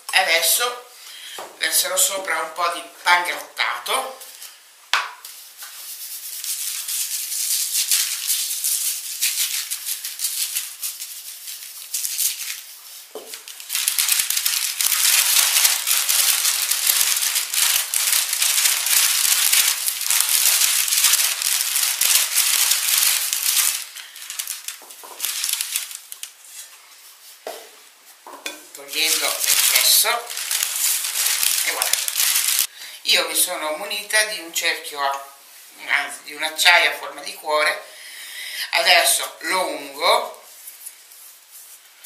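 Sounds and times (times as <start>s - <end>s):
paper rustling: 5.2s - 27.5s, 28.8s - 32.7s, 40.0s - 42.0s
breadcrumbs rattling on paper: 5.7s - 26.7s, 28.8s - 32.7s.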